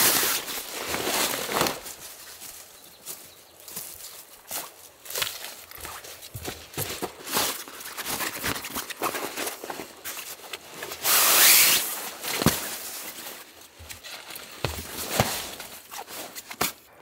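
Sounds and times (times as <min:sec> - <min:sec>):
footsteps on dry leaves: 0:00.0 - 0:16.4
sleeping bag fabric rustling: 0:05.6 - 0:16.6.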